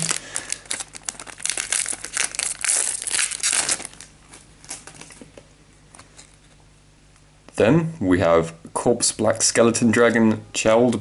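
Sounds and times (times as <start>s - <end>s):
foil wrapper crinkling: 0.0s - 5.4s.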